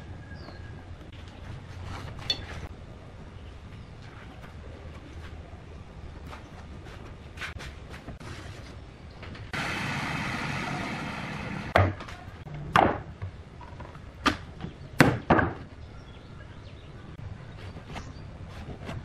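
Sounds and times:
steady hiss: 9.5s - 11.8s.

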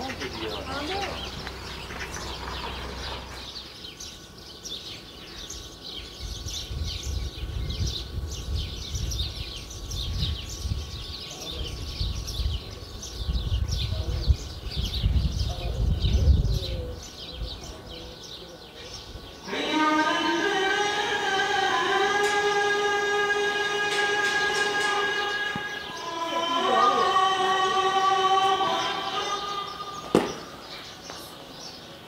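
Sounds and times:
small birds chirping: 0.0s - 32.0s
wind rumbling on microphone: 6.2s - 18.0s.

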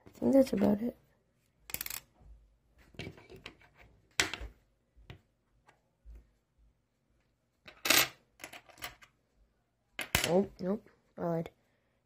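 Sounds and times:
coins clicking on a tabletop: 1.7s - 2.1s, 7.7s - 9.1s.

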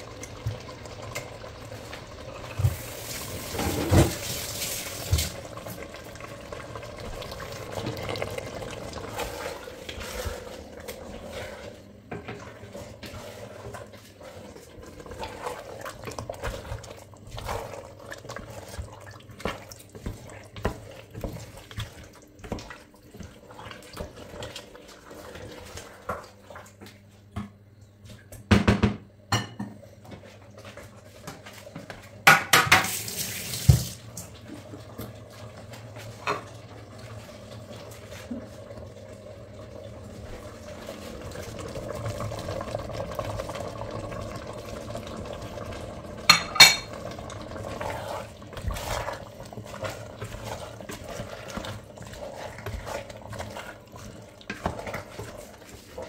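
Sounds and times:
wooden spoon stirring in pot: 0.0s - 27.4s, 29.9s - 33.0s, 33.6s - 56.0s
pots and utensils clinking: 46.2s - 47.4s.

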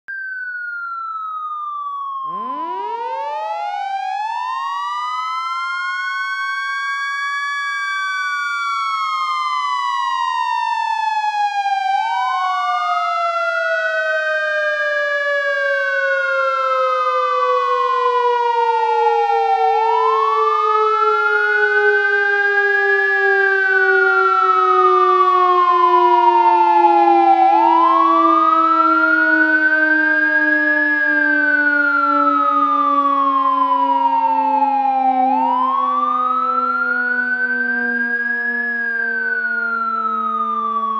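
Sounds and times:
fire truck siren wailing: 0.1s - 40.9s
low sinking siren tone: 0.1s - 40.9s.

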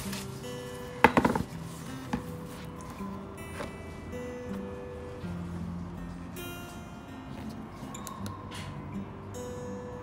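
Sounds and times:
background music with held notes: 0.0s - 10.0s
cardboard box knocks: 1.0s - 1.5s.

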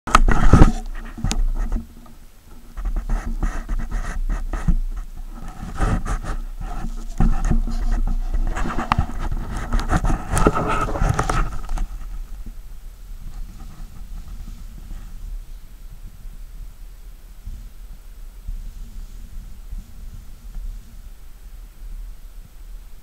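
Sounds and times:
camera handling rustles and knocks: 5.4s - 12.3s.

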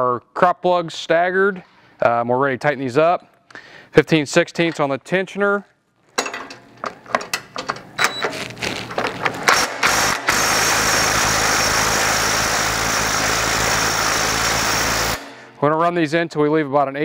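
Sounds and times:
tools clicking and knocking: 6.1s - 8.3s
cordless drill running: 9.5s - 15.2s.

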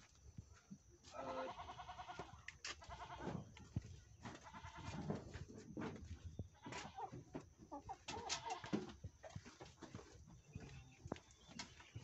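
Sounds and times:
farm animals quavering cries: 1.1s - 3.6s, 4.2s - 5.3s, 6.5s - 9.0s.

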